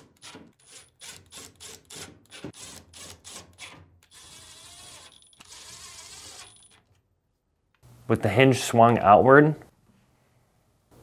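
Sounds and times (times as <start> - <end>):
power driver driving screws: 0.0 - 6.9.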